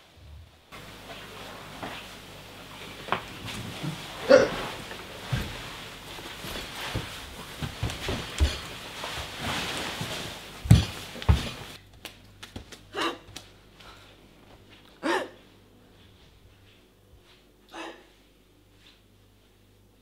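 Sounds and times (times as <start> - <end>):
body dragged across wooden floor: 3.4 - 11.8
person hiccuping: 4.2 - 4.7, 12.9 - 13.3, 15.0 - 15.4.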